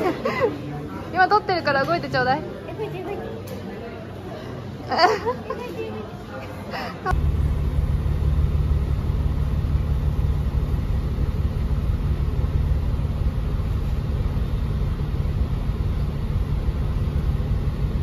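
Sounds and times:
bus engine low rumble: 0:07.0 - 0:18.0.

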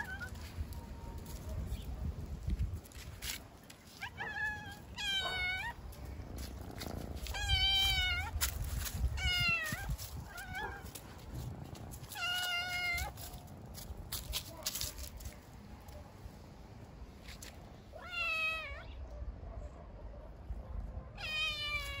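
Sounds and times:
cats meowing: 0:00.0 - 0:00.7, 0:03.9 - 0:11.0, 0:11.9 - 0:13.4, 0:18.0 - 0:19.0, 0:21.2 - 0:22.0.

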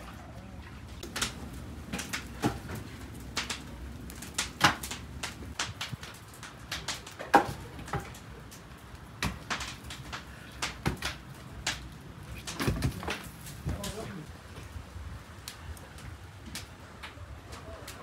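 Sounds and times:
wooden logs knocking: 0:12.4 - 0:13.9.

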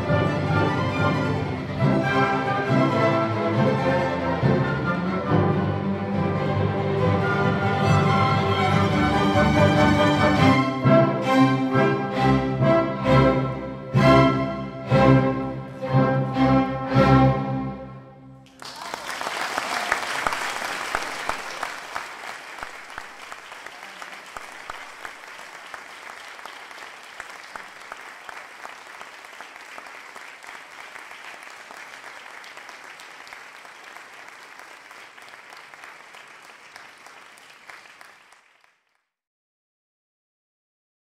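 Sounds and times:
audience applauding: 0:18.4 - 0:39.1.

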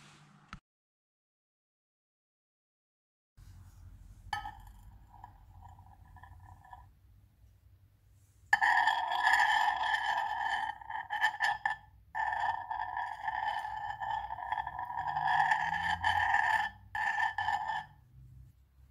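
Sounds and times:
utensil squealing on glass plate: 0:09.1 - 0:17.9.

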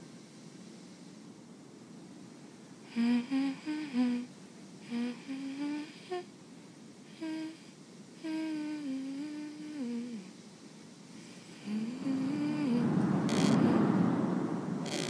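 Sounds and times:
girl humming: 0:02.9 - 0:06.3, 0:07.1 - 0:10.4, 0:11.4 - 0:13.8.

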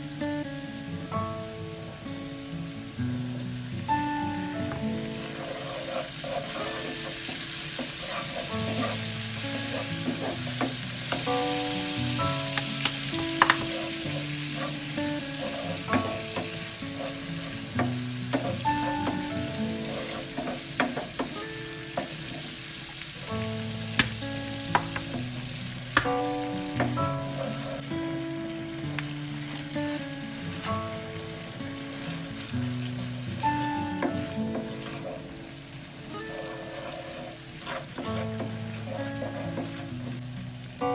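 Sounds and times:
food sizzling in hot oil: 0:00.0 - 0:40.9
wooden spatula scraping pan: 0:05.2 - 0:21.4, 0:36.2 - 0:40.2.

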